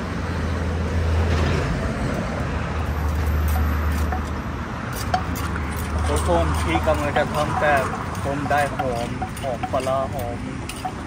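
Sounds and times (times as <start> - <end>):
road traffic rumble: 0.0 - 11.0
pestle knocking in mortar: 5.0 - 11.0.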